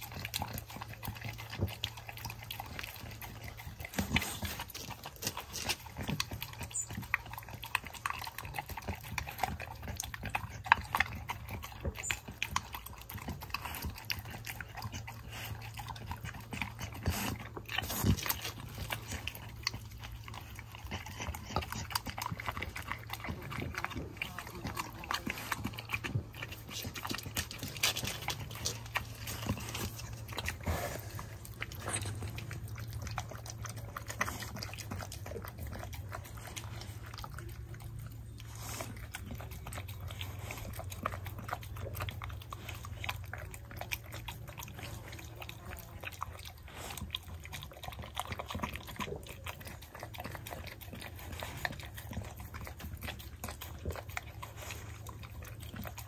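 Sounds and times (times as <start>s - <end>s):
dog chewing and lapping food: 0.0s - 56.0s.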